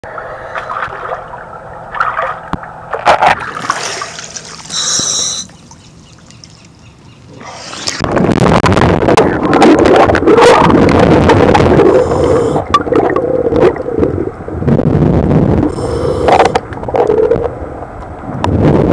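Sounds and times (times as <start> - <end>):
underwater rush: 0.0 - 6.7, 7.3 - 18.9
water splashing and sloshing: 0.0 - 18.3.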